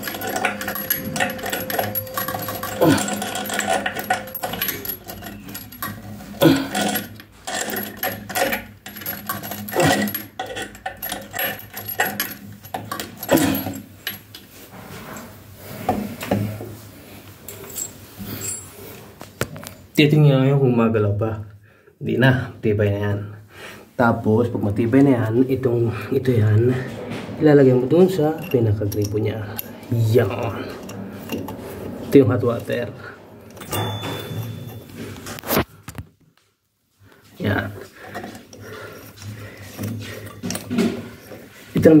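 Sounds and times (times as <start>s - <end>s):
metal tool clinking on fittings: 0.0s - 14.3s, 28.2s - 31.6s, 38.0s - 41.8s.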